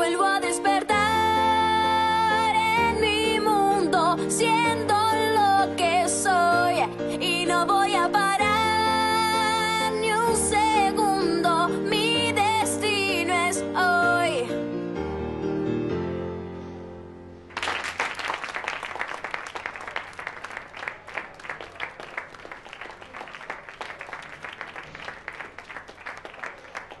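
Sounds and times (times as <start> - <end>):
audience applause: 17.5 - 27.0.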